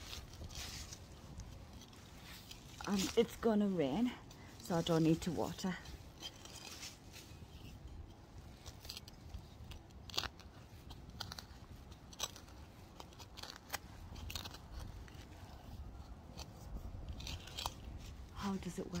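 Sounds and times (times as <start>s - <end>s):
trowel scraping soil: 0.0s - 7.8s.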